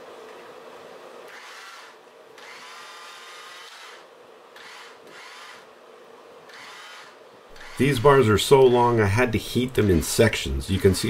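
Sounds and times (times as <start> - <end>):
electric drill motor whine: 1.3 - 5.7, 6.5 - 7.8.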